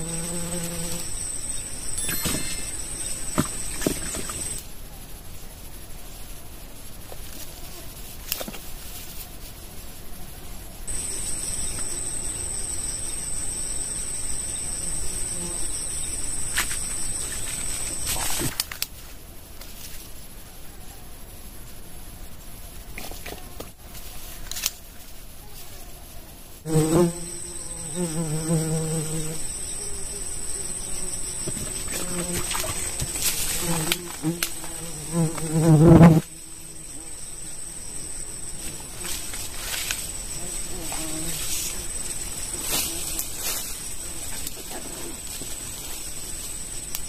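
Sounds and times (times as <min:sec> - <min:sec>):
high-pitched cricket trill: 0:00.0 - 0:47.0
insect high-pitched buzz: 0:00.0 - 0:47.0.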